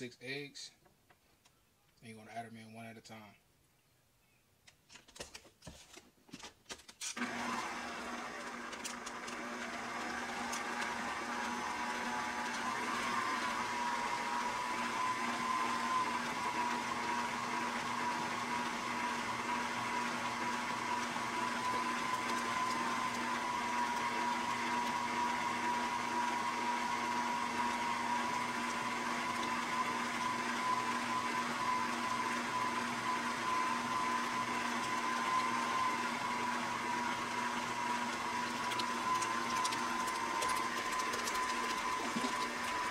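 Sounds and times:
beater working through batter: 0:07.2 - 0:42.9
stand mixer motor whine: 0:07.2 - 0:42.9.

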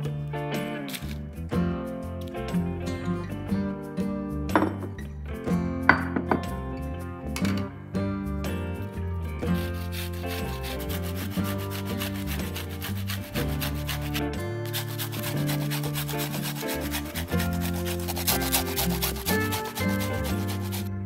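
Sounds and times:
onion scraping on metal grater: 0:09.5 - 0:20.9.

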